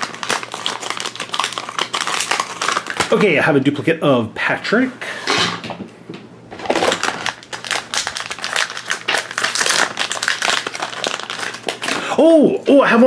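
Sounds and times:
foil bag crinkling: 0:00.0 - 0:03.3, 0:06.6 - 0:12.2.

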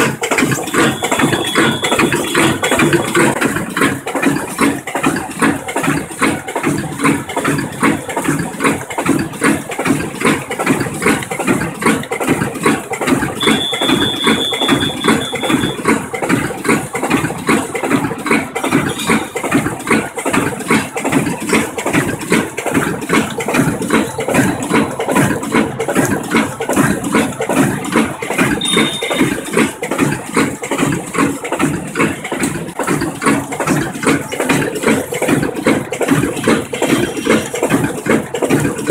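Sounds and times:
bag making machine running: 0:00.0 - 0:38.9
thin high tone: 0:28.6 - 0:29.5.

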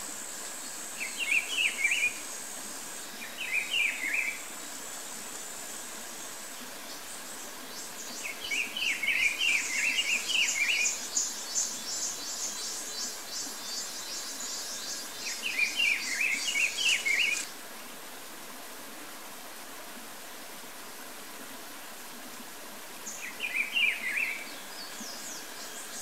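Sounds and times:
steady background hiss: 0:00.0 - 0:26.0
bird song whistled notes: 0:07.8 - 0:17.5, 0:23.1 - 0:26.0.

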